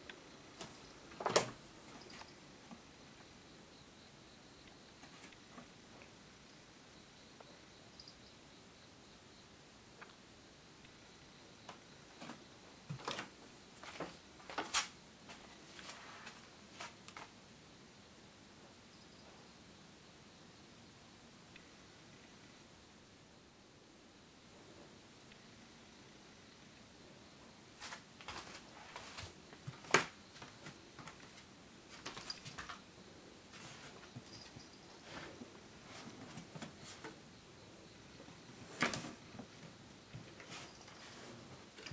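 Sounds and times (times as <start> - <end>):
scuffs and rustles on wooden floor: 27.8 - 32.8.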